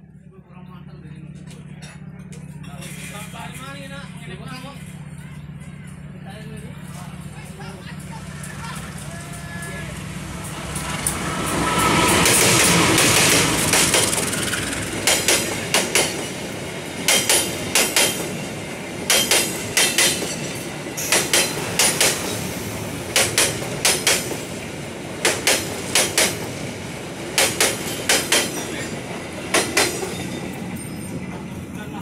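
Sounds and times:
steady rolling rumble: 0.0 - 32.0
train wheels clattering over rail joints: 10.4 - 31.6.

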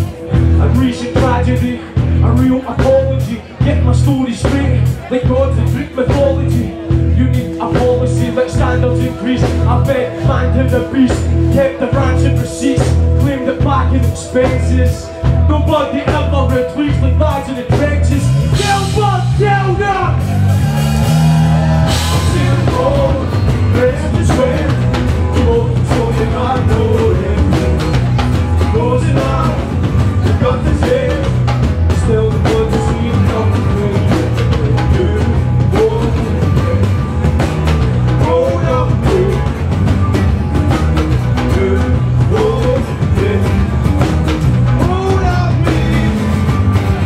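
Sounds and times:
drum kit: 0.0 - 47.0
electric bass guitar: 0.0 - 47.0
person rapping: 0.4 - 20.2, 22.1 - 28.0, 28.6 - 36.4, 38.2 - 39.4, 44.8 - 46.4.

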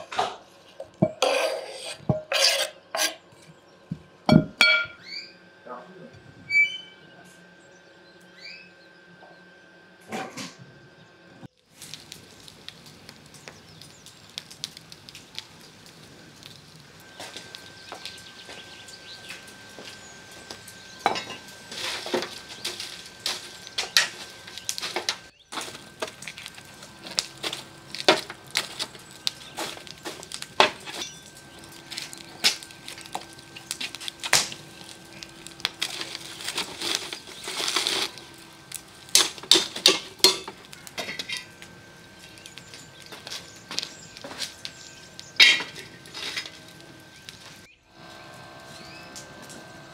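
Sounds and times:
wood fire crackling and popping: 11.4 - 49.9.

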